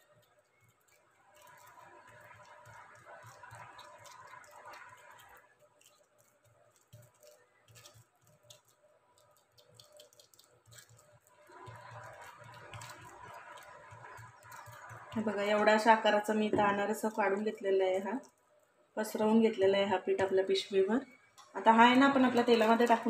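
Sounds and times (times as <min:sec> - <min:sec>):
fingers patting dough: 0:00.0 - 0:18.3.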